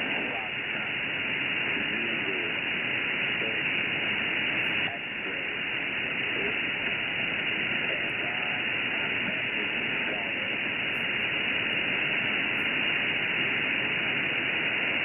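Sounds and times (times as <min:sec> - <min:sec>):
faint voice on radio: 0:00.0 - 0:15.0
shortwave radio static: 0:00.0 - 0:15.0.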